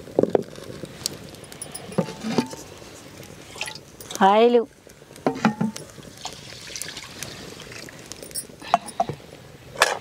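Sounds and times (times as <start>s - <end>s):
liquid pouring into pots: 3.4s - 4.2s, 5.2s - 8.5s
pots knocking: 5.3s - 5.8s.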